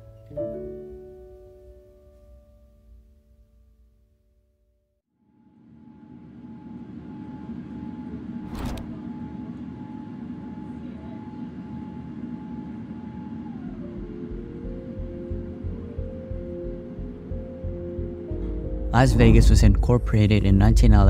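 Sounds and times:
music: 0.0s - 4.9s, 13.1s - 21.0s
faint steady whine: 5.2s - 21.0s
sharp click: 8.5s - 9.0s.

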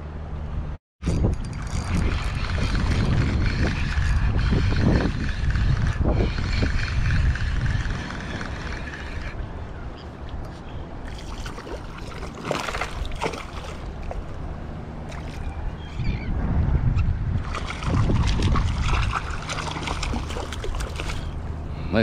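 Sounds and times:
water splashing against hull: 11.0s - 16.1s, 17.4s - 21.7s.

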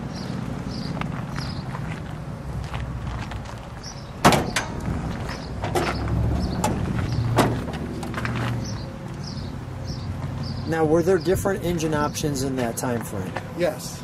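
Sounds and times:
car hood latch clunk: 4.2s - 4.8s, 6.6s - 6.8s, 7.4s - 8.1s
latch clicks and knocks: 4.2s - 4.9s, 5.6s - 8.2s.

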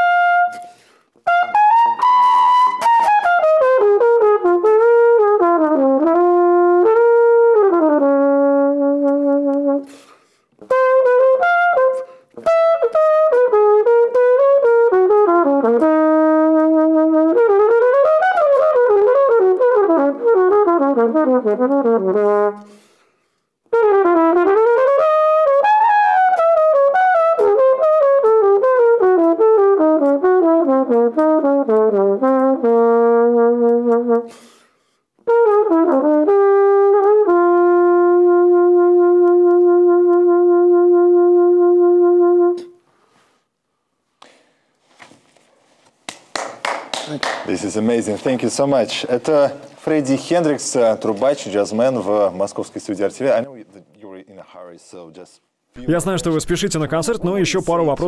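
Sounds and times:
flugelhorn jazz solo: 0.0s - 23.0s, 23.6s - 43.3s.

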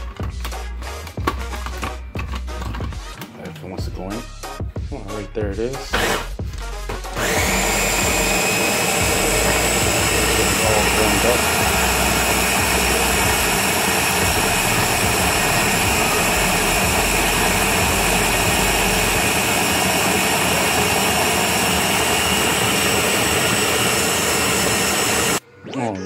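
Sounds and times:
blender motor running: 7.1s - 25.4s.

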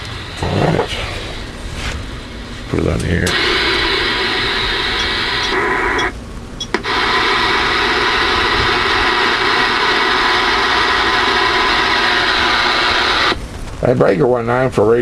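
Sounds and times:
radio static: 0.4s - 1.6s, 2.6s - 14.6s
radio click: 3.2s - 13.4s.

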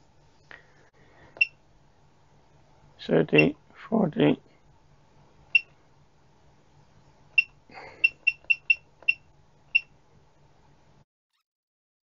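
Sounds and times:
high electronic keypad beeps: 3.4s - 3.6s, 5.5s - 5.7s, 7.4s - 9.9s.

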